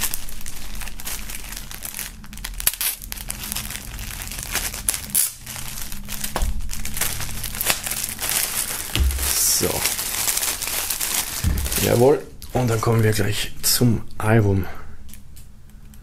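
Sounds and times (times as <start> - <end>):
plastic shrink-wrap crinkling and tearing: 0.0 - 13.2.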